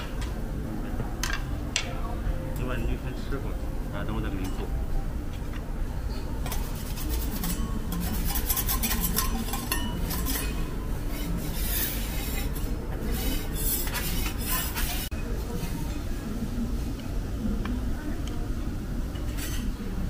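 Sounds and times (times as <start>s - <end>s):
metal spatulas scraping griddle: 6.4s - 16.0s, 19.2s - 19.7s.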